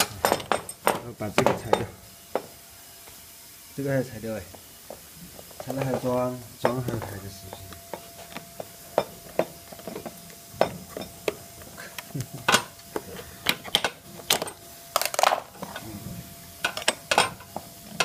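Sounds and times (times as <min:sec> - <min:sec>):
metal hand tools clinking: 0:16.6 - 0:17.6.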